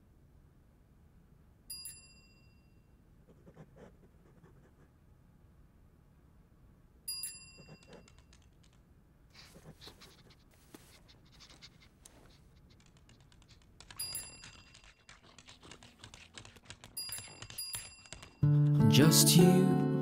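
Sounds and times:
small metal bell ringing: 1.7 - 2.9, 7.1 - 7.6
faint scratching: 7.5 - 18.4.

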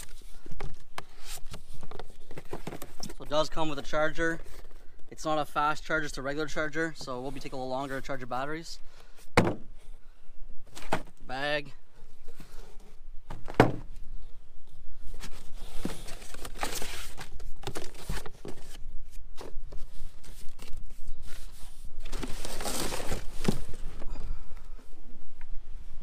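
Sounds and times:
cardboard flaps rustling: 0.0 - 3.6, 15.1 - 24.3
knocks on cardboard: 9.4 - 9.6.

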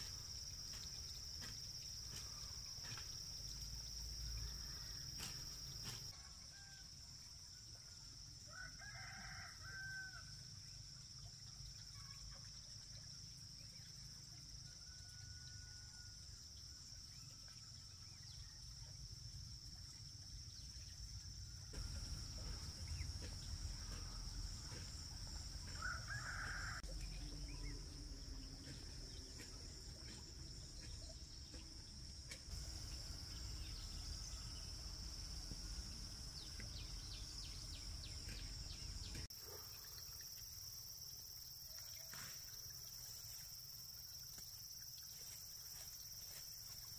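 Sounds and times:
rooster crowing: 8.5 - 10.3, 25.7 - 26.9.

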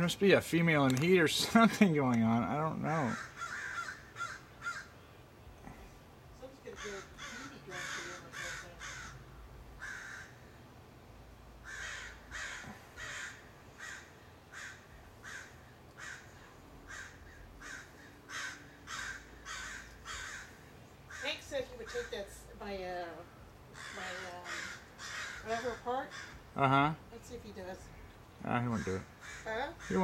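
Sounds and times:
crows cawing: 2.8 - 5.0, 6.6 - 10.6, 11.6 - 27.0, 27.6 - 30.0.

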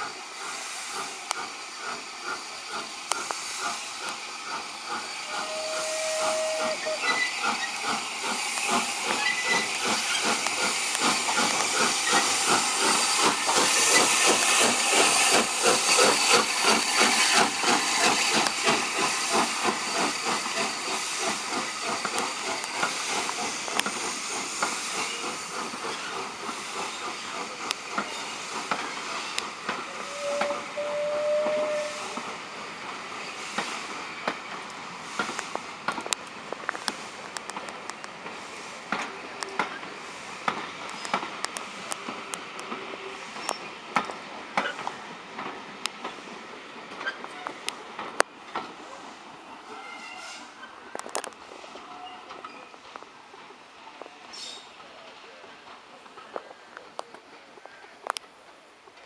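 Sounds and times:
steam locomotive exhaust beats: 0.0 - 47.1
hissing steam: 0.0 - 59.0.

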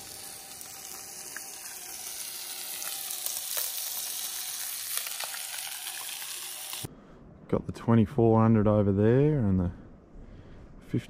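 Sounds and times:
fish sizzling in a pan: 0.0 - 6.9.

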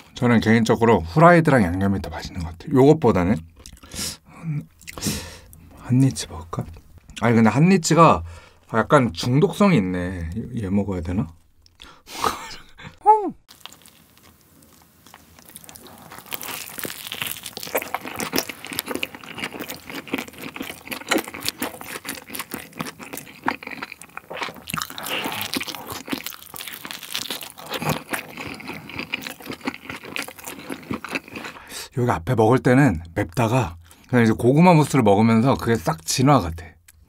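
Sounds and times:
person humming: 12.4 - 13.4
crunching and chewing crust: 13.5 - 31.7.

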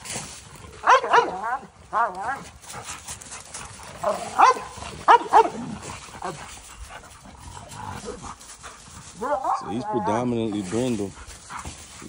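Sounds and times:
dogs barking: 0.8 - 2.6, 3.8 - 6.4, 9.1 - 10.9.

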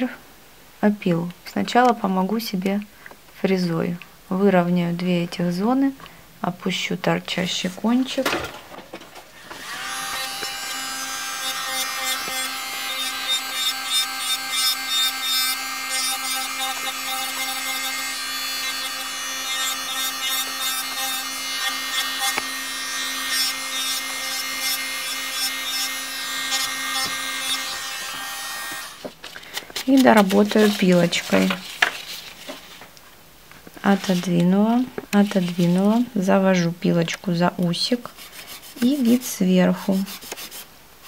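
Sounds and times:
drill bit grinding gel: 9.5 - 29.0
electric nail drill whining: 9.5 - 29.0.

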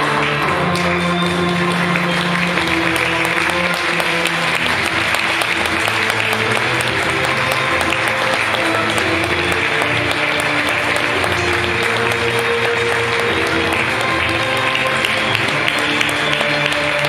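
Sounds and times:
audience applauding: 0.0 - 17.0
music with long held notes: 0.0 - 17.0.

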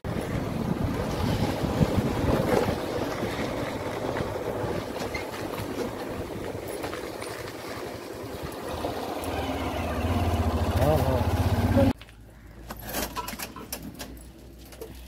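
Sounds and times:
wind buffeting microphone: 0.0 - 8.8
motorcycle engine running: 8.4 - 12.0.

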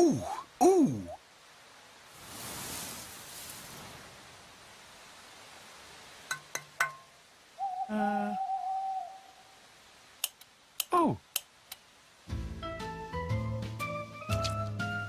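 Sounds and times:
owl hooting: 7.6 - 9.6.

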